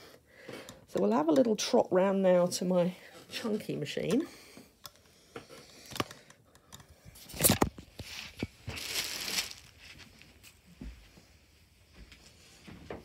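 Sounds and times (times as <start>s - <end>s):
rustling: 7.2s - 11.1s.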